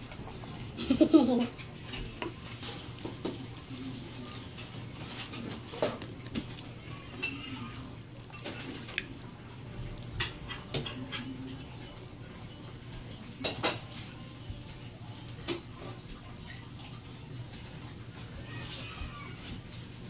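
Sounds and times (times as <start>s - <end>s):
dishes and cutlery clinking: 0.1s - 9.2s, 9.9s - 16.8s.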